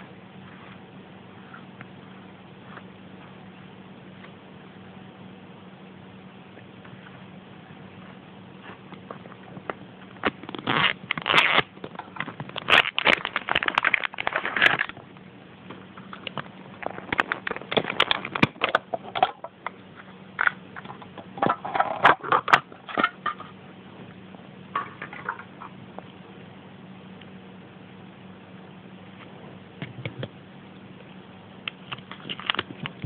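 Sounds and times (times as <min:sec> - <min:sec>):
packaging crinkling: 0:08.6 - 0:15.0, 0:16.1 - 0:19.4, 0:31.8 - 0:33.0.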